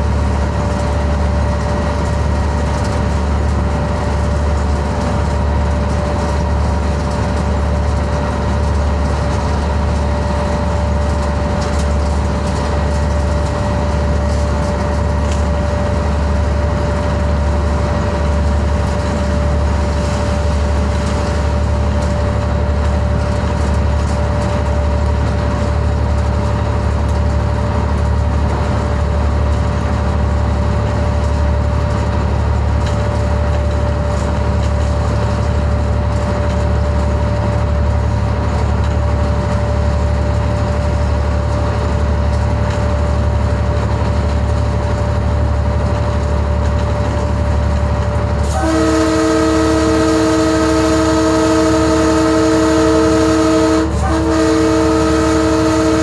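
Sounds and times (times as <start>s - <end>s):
constant rushing noise: 0.0s - 54.6s
diesel locomotive engine drone: 0.0s - 56.0s
multi-tone locomotive horn: 48.4s - 56.0s.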